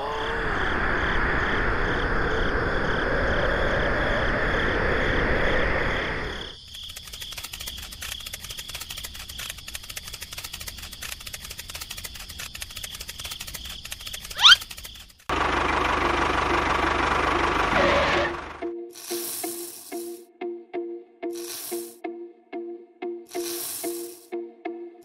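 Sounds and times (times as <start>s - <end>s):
wind rushing: 0.0s - 6.5s
fast even clicking: 6.6s - 15.3s.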